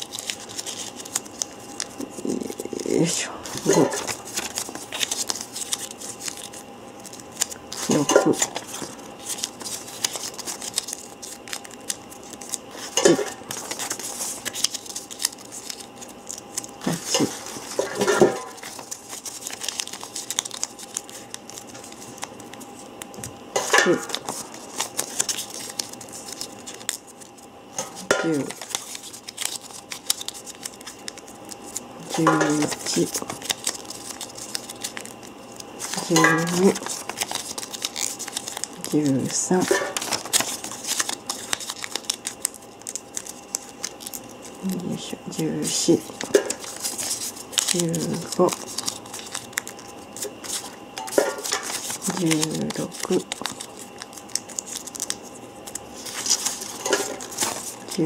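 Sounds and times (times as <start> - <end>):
paper rustling and crackling: 0.0 - 58.0.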